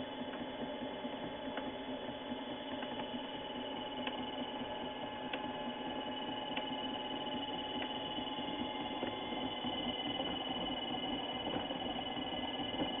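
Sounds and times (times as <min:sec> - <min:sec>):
lathe humming: 0:02.6 - 0:13.0.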